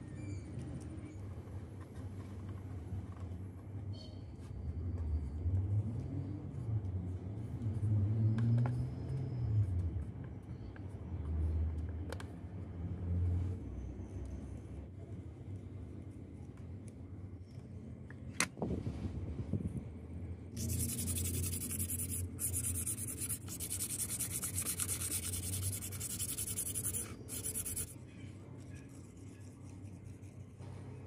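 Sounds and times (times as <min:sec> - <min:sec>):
sandpaper rubbing on plastic sheet: 0:20.6 - 0:28.0.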